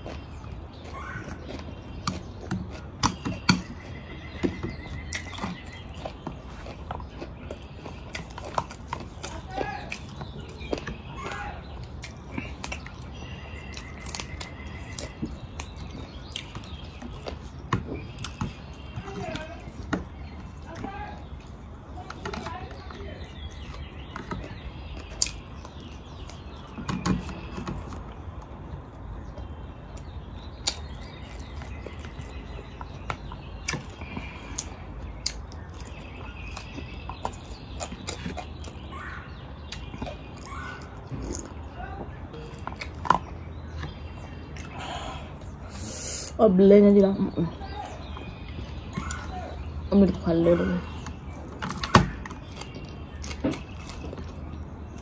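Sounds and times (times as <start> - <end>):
mouth clicks and smacks: 0.0 - 46.4.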